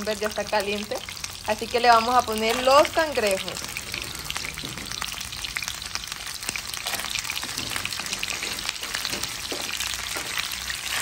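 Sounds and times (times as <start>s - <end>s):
crabs sizzling in hot fat: 0.0s - 11.0s
crackles and pops of spitting fat: 2.4s - 11.0s.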